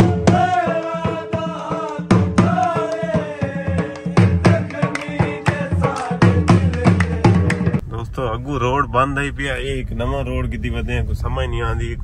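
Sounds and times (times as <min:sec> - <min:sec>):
steady drum beat: 0:00.0 - 0:07.9.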